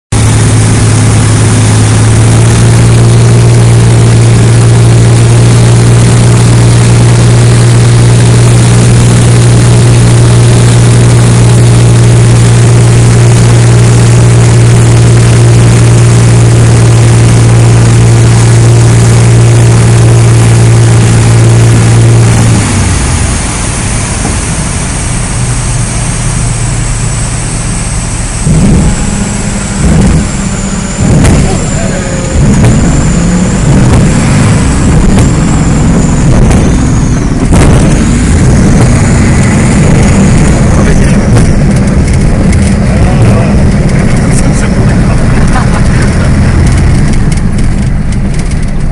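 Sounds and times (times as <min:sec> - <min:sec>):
light aircraft engine and propeller: 0:00.1 - 0:48.9
loud rumble: 0:00.1 - 0:48.9
rushing airflow: 0:27.2 - 0:48.9.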